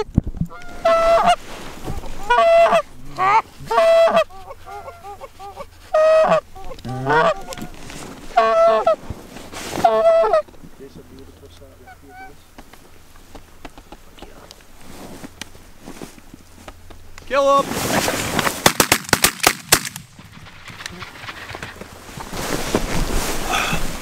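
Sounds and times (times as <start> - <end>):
goose clucking: 0.0 - 9.0, 9.7 - 10.5, 11.8 - 12.4
goose honking: 0.5 - 9.0, 9.7 - 10.5, 11.8 - 12.4.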